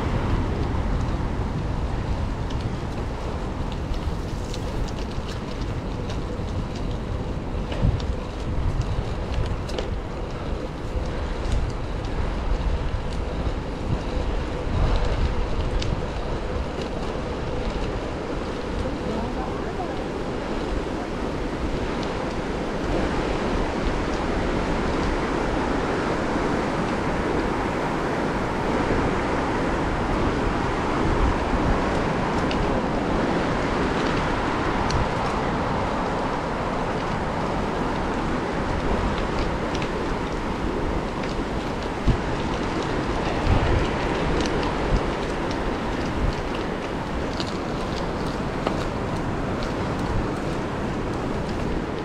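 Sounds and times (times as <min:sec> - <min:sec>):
bicycle tyres rolling: 0:00.0 - 0:52.0
wind on microphone: 0:00.0 - 0:52.0
small ticks: 0:02.2 - 0:19.1, 0:37.8 - 0:52.0.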